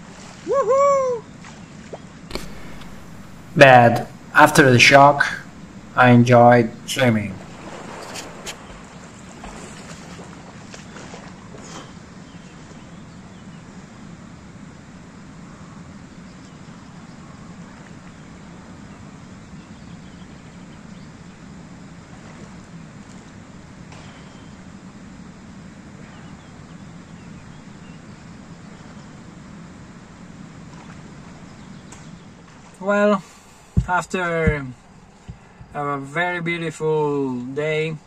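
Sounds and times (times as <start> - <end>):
water splashes from swimming: 2.3 - 11.8.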